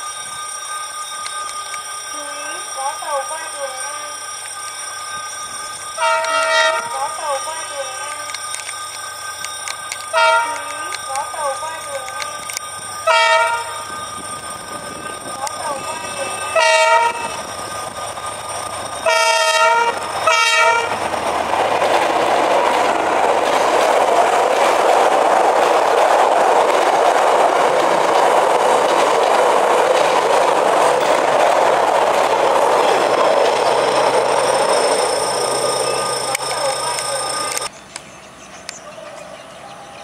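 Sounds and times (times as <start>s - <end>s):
train wheels rolling on rails: 0.0s - 40.0s
locomotive horn blasts: 6.0s - 7.1s, 10.1s - 11.2s, 13.0s - 13.8s, 15.6s - 17.4s, 19.0s - 21.0s.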